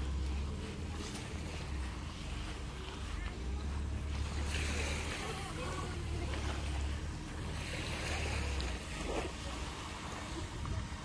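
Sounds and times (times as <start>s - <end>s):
surf washing: 0.0s - 11.0s
wind buffeting microphone: 3.8s - 11.0s.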